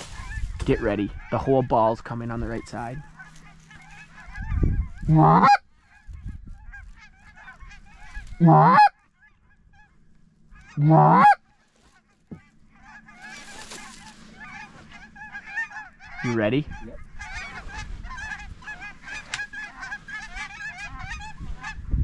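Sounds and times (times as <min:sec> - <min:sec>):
goose call honks: 0:00.0 - 0:21.9
geese yelping and cackling: 0:00.0 - 0:22.0.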